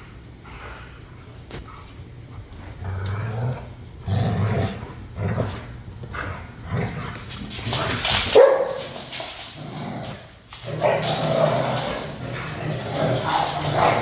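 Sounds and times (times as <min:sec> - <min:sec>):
dogs growling and snarling: 0:02.5 - 0:08.3, 0:08.9 - 0:14.0
dog barking: 0:08.4 - 0:08.8.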